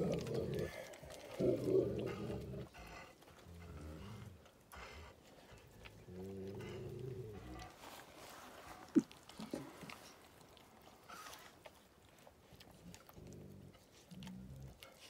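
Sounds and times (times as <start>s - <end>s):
dog growling and moaning: 0.0s - 7.9s, 12.7s - 15.0s.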